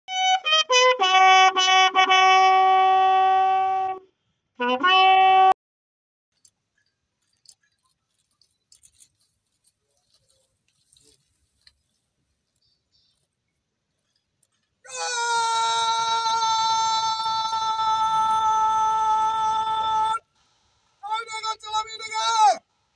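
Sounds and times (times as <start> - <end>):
bugle call: 0.1 - 4.0
faint clicks: 6.3 - 14.8.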